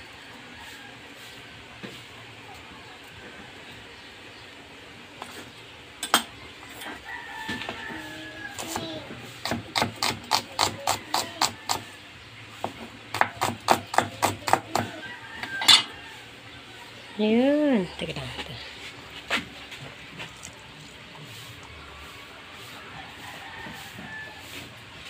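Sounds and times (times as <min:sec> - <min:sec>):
knife chopping on wooden board: 0:08.6 - 0:11.8, 0:12.6 - 0:15.0.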